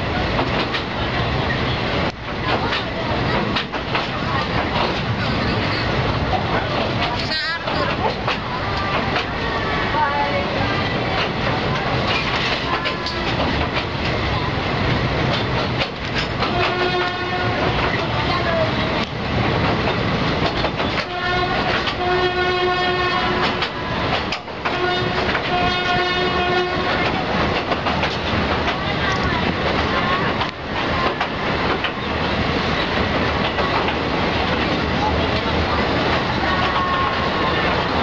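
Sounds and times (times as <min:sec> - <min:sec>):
train wheels rumbling and clacking: 0:00.0 - 0:38.0
train horn blasts: 0:16.4 - 0:17.8, 0:21.0 - 0:23.7, 0:24.6 - 0:27.1.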